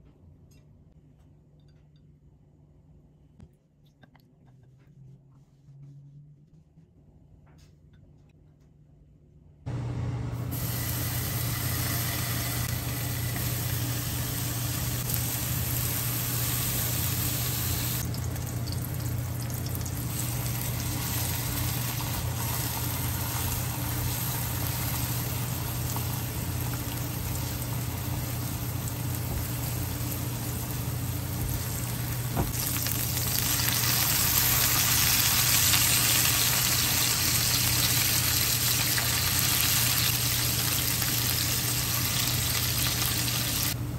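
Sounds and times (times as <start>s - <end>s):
steady low hum: 0.0s - 43.9s
meat sizzling in a frying pan: 10.6s - 43.8s.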